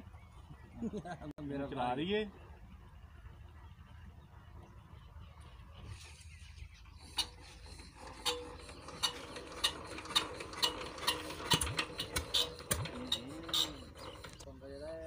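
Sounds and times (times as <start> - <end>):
hand crank clicking: 7.1 - 14.4.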